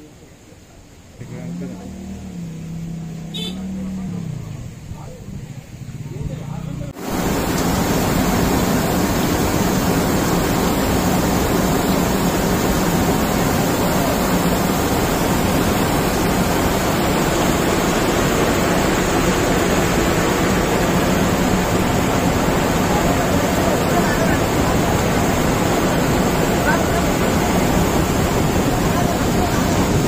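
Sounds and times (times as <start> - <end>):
heavy rain falling: 7.0 - 30.0.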